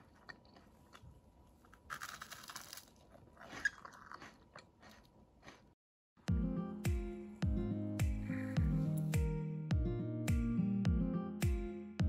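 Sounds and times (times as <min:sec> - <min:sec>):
crunching crisp bread: 0:00.0 - 0:05.8.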